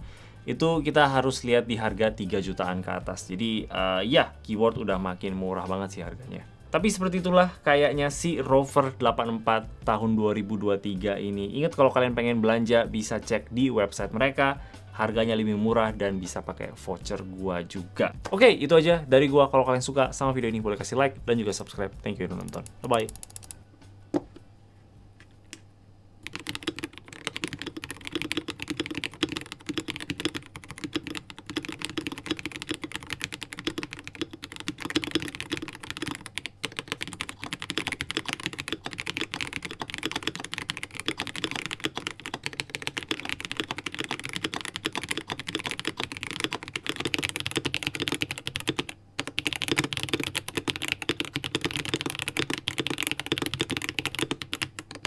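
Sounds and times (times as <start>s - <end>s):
fast typing on mechanical keyboard: 22.3s - 23.6s, 26.2s - 55.0s.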